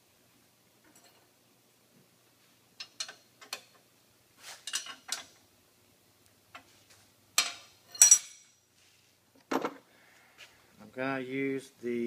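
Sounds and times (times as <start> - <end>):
metal parts clinking on workbench: 7.4 - 8.6.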